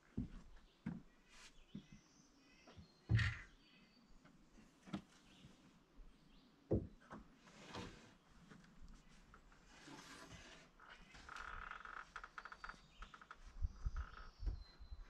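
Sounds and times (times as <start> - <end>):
wood rubbing and scraping: 7.4 - 13.4.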